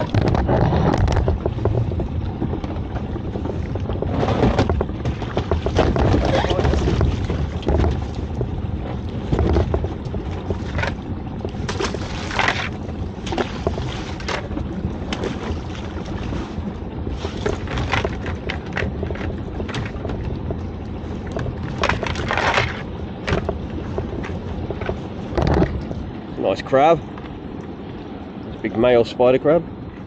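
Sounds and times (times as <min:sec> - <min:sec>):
steady low rumble: 0:00.0 - 0:30.0.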